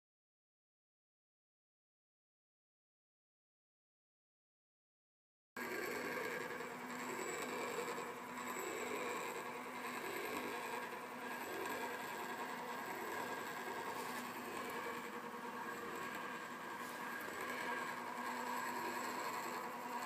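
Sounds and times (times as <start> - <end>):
clockwork motor whirring: 5.6 - 20.0.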